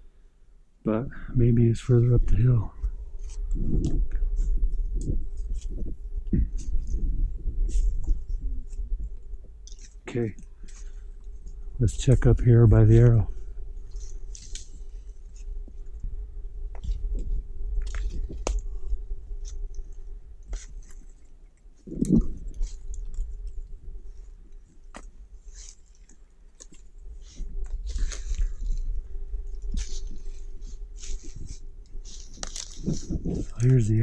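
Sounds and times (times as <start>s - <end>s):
faint steady hum: 0.0s - 34.0s
brush crackling: 1.5s - 34.0s
footsteps crunching through dry leaves: 24.9s - 33.8s.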